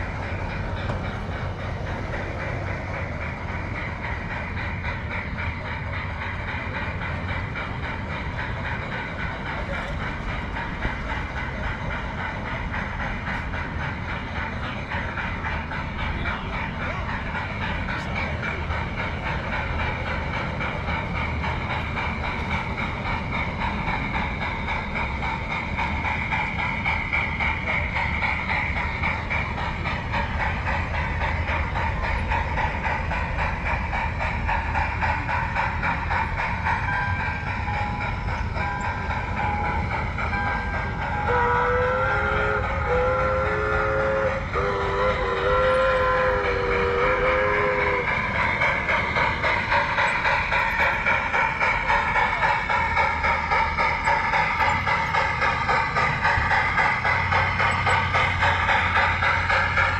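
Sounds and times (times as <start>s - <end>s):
hiss: 0.0s - 59.9s
model train wheels clicking: 0.0s - 59.9s
train whistle blasts: 40.6s - 48.2s.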